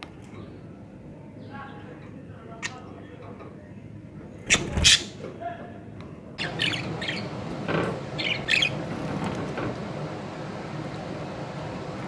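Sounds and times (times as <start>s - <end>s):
budgerigar chirping: 6.4s - 7.3s, 8.2s - 8.8s.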